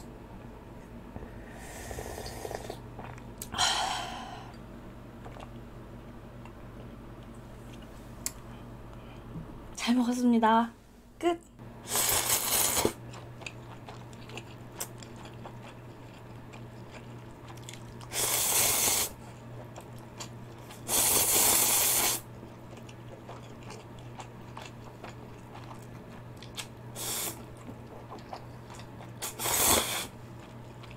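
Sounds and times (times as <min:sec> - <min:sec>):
soft chewing: 0:02.6 - 0:03.5, 0:05.2 - 0:05.6, 0:06.4 - 0:09.3, 0:13.0 - 0:18.1, 0:19.2 - 0:20.8, 0:22.3 - 0:26.8, 0:27.4 - 0:29.3, 0:30.3 - 0:30.9.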